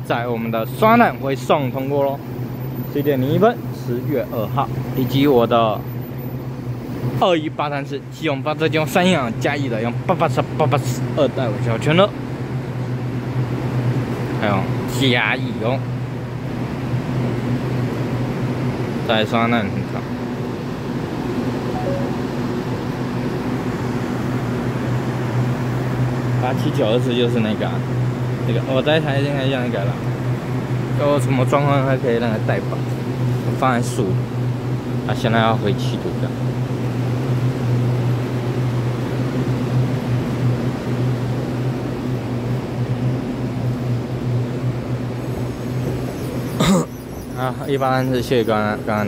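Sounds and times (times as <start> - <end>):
deep mechanical drone: 37.5 - 49.0.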